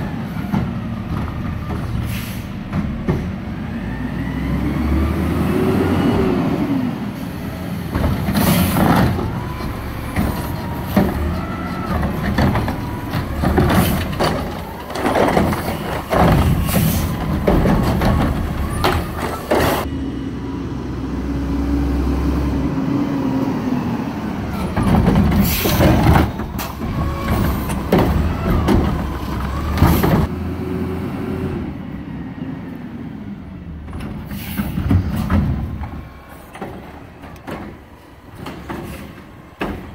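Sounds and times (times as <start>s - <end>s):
garbage truck engine revving: 0.0s - 32.6s
air brake hisses: 2.0s - 2.6s, 34.3s - 34.9s.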